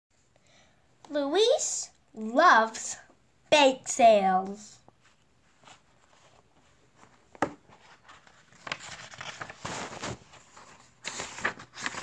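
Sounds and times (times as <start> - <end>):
book pages turning: 4.9 - 12.0
paper rustling and flapping: 5.0 - 12.0.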